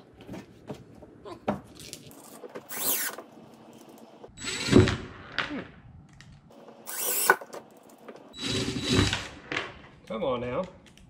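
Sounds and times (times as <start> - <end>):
cordless drill driving screws: 2.7 - 3.2, 6.9 - 7.5, 8.4 - 9.3.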